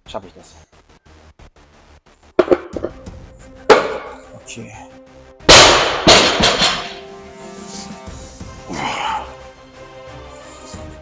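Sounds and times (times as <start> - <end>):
sharp bangs: 5.5 - 7.0.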